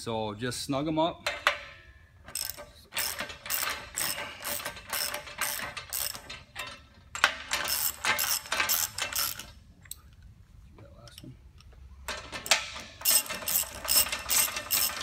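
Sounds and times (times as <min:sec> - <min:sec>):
ratchet wrench clicking: 0:02.3 - 0:06.5, 0:07.5 - 0:09.6, 0:12.4 - 0:15.0.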